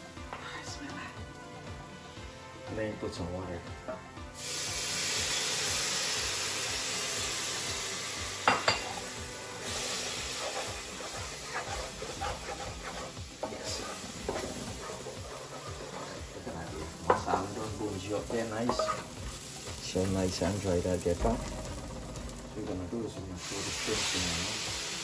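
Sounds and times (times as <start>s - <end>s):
water hissing in hot pan: 4.3s - 25.0s
spoon stirring and scraping pan: 8.7s - 20.4s.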